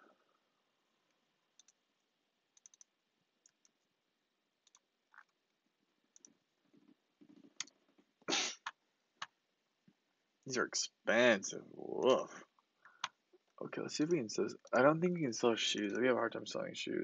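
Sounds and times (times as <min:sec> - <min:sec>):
computer mouse clicks: 0:01.6 - 0:01.8, 0:02.6 - 0:03.8, 0:04.6 - 0:05.4, 0:06.1 - 0:08.0.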